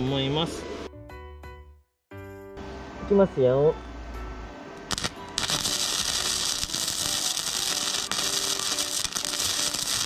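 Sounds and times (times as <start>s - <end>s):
welding arc crackling and hissing: 4.9s - 10.0s.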